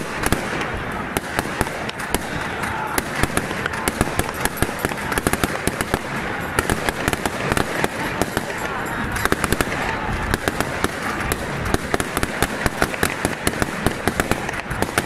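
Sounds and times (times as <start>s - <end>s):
firecrackers banging: 0.0s - 15.0s
large crowd noise: 0.0s - 15.0s.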